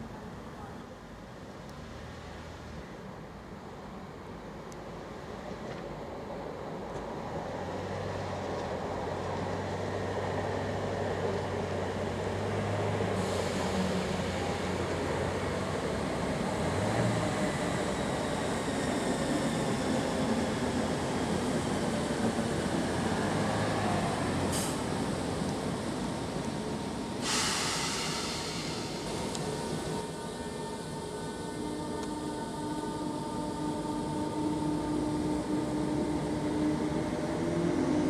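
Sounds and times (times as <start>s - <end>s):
electric train rumbling: 0.0s - 38.0s
short hiss: 27.2s - 29.5s.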